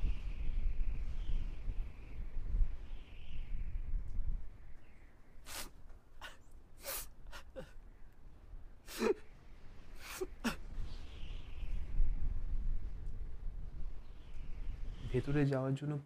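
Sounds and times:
person sobbing and gasping: 5.5 - 7.8, 8.9 - 9.2, 10.0 - 10.6.

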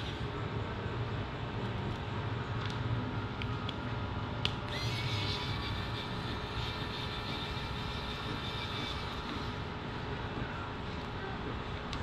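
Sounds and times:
electric screwdriver whining: 4.7 - 9.6.

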